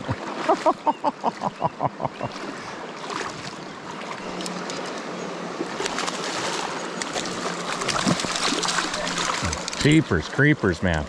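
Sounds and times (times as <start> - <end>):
stream rushing: 0.0 - 11.0
light splashing water: 2.3 - 11.0.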